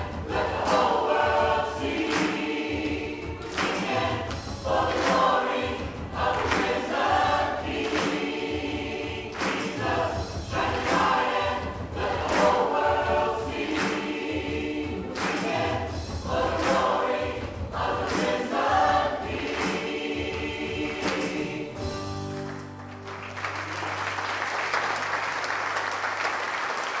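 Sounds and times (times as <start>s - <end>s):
choir and congregation singing: 0.0s - 22.7s
applause: 3.5s - 4.1s, 6.4s - 6.8s, 9.3s - 9.9s, 15.2s - 15.5s, 22.2s - 27.0s.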